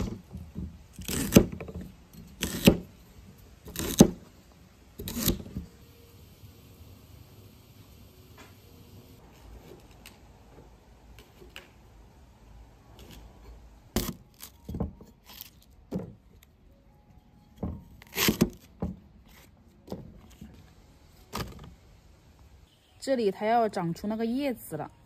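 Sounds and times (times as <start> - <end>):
knife chopping stalks: 1.0 - 1.6, 2.4 - 2.9, 3.7 - 4.2, 5.0 - 5.5.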